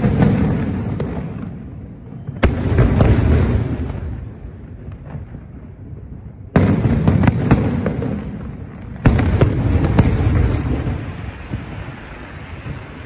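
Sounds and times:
firework sharp cracks: 0.0s - 13.0s
firework shells booming: 0.0s - 13.0s.

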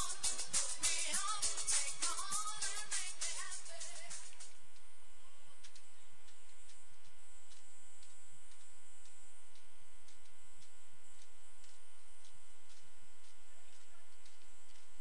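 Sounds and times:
electrical mains hum: 0.0s - 15.0s
faint interference clicks: 5.6s - 15.0s.

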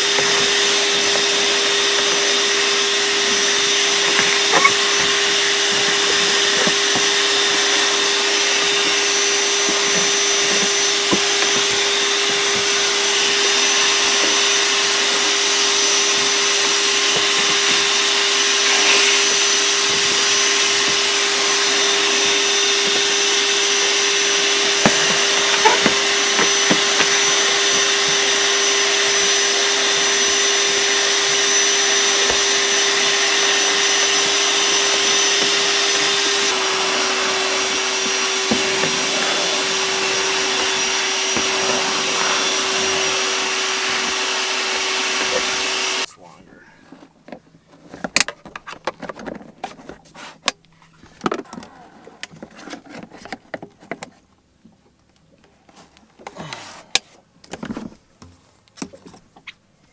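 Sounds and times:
shop vacuum whining: 0.0s - 46.1s.

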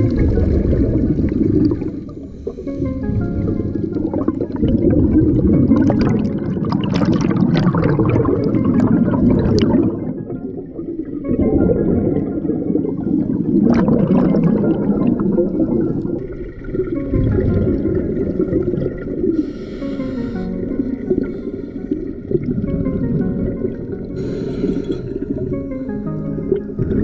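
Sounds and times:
low underwater rumble: 0.0s - 19.6s
bubbles rising and crackling: 0.0s - 27.0s.

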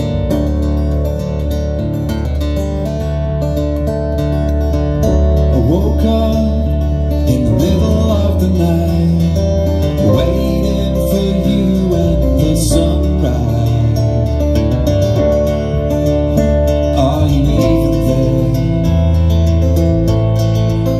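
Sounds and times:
bass line: 0.0s - 20.9s
strummed acoustic guitar: 0.0s - 20.9s
man singing: 5.4s - 14.7s, 16.0s - 19.4s.

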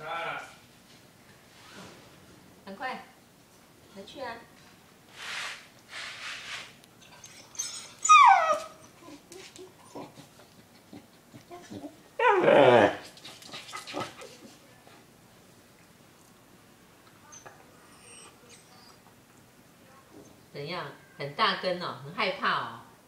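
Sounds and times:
dog whining and crying: 7.2s - 10.2s, 11.5s - 13.0s, 17.3s - 19.1s.

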